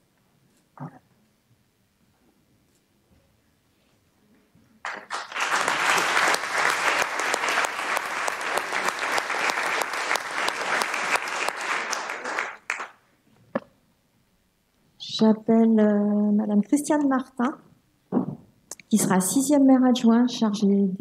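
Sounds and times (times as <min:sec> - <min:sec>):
crowd applauding: 0:04.8 - 0:13.0.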